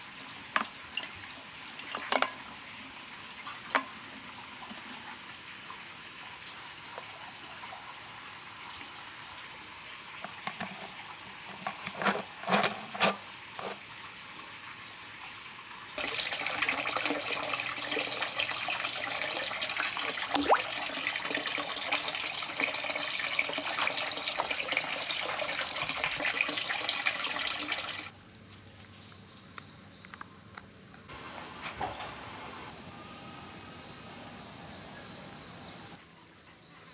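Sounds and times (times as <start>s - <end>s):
water running: 0.0s - 14.8s, 15.9s - 28.1s
liquid splashing in glass jug: 20.2s - 21.6s.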